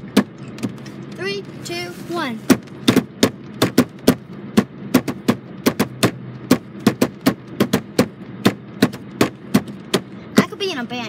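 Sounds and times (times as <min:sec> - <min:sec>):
steady low hum: 0:00.0 - 0:11.0
rapid tapping on hard surface: 0:02.5 - 0:10.2.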